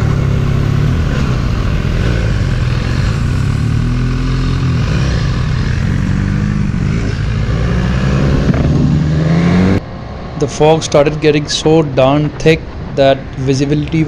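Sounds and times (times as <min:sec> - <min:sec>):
motorcycle engine revving: 0:00.0 - 0:09.8
wind rush on microphone: 0:05.8 - 0:09.8.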